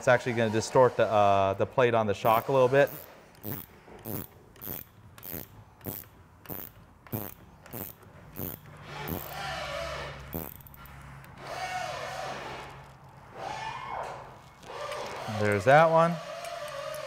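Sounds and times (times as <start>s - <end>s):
ratchet wrench clicking: 2.3s - 9.4s, 10.3s - 11.1s, 14.8s - 17.0s
rasping squeaks: 2.3s - 17.0s.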